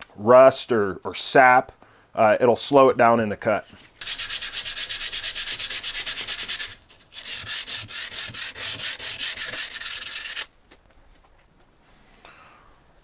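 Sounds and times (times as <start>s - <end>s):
sandpaper rubbing on steel: 4.0s - 10.5s.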